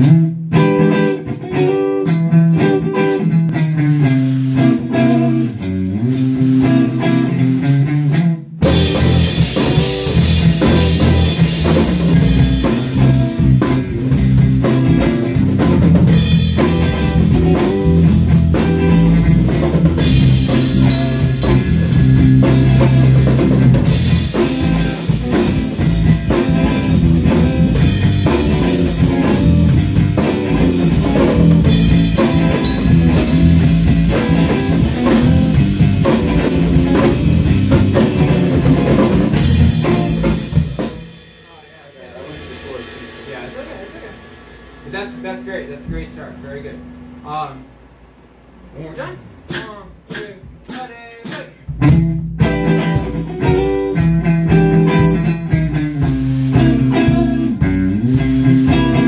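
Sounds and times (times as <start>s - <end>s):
electric guitar: 0.0s - 41.4s, 51.7s - 59.0s
live rock band playing: 0.0s - 47.4s, 49.4s - 59.0s
bass guitar: 0.0s - 59.0s
drum kit: 0.0s - 59.0s.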